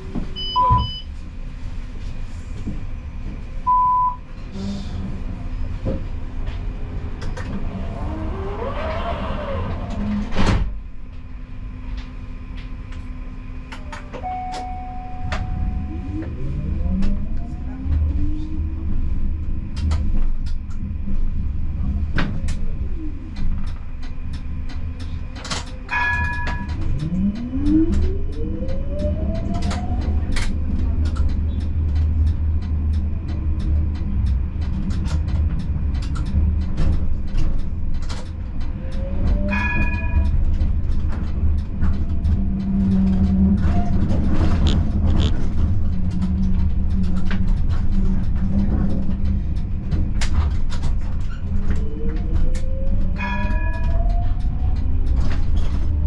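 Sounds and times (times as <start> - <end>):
tram electric drive whine: 0.0 - 56.0
low rolling rumble: 14.9 - 56.0.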